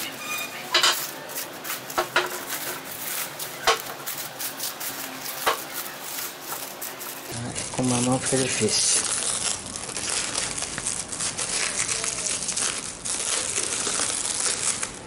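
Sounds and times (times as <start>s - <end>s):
plastic wrap crinkling: 0.0s - 15.0s.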